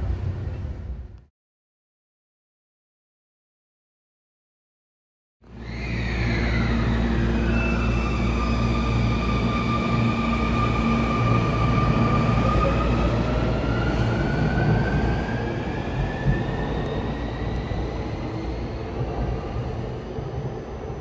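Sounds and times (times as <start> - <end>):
low rumble of train cars: 0.0 - 1.3, 5.5 - 21.0.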